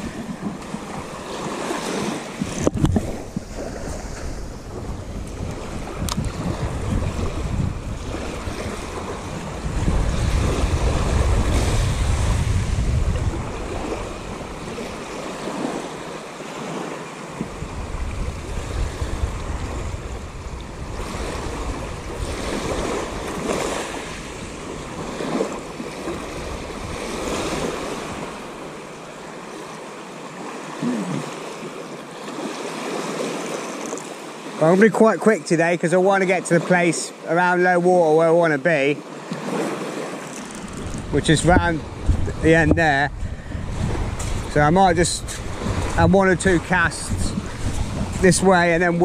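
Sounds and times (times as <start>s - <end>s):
wind buffeting microphone: 0.0s - 15.9s, 17.3s - 28.8s, 39.5s - 49.0s
small waves breaking on shore: 0.0s - 49.0s.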